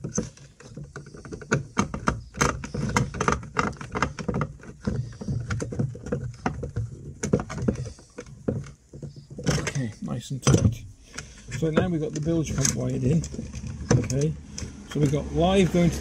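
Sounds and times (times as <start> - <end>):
screwdriver clicking and scraping plastic: 0.0 - 9.8.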